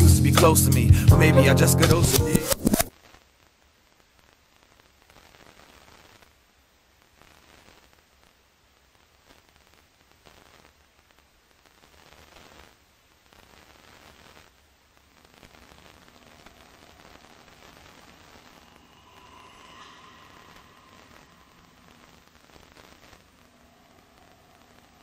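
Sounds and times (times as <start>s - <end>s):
static-like hiss: 0.0s - 25.0s.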